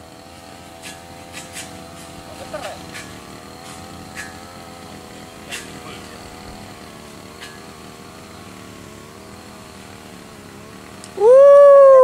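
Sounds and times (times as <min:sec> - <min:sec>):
engine drone: 0:00.0 - 0:12.0
faint wavering hum: 0:11.0 - 0:12.0.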